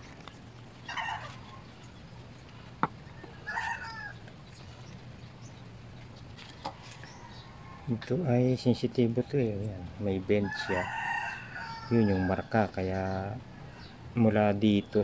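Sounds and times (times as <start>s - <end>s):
chickens clucking: 0.6s - 8.2s.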